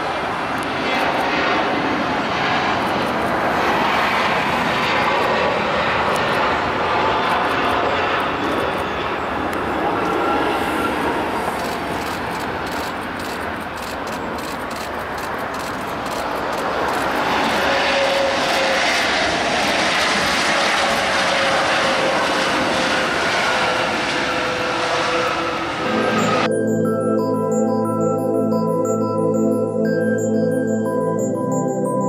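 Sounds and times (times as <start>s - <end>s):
jet engines roaring: 0.0s - 26.5s
faint jet engine whine: 0.0s - 32.0s.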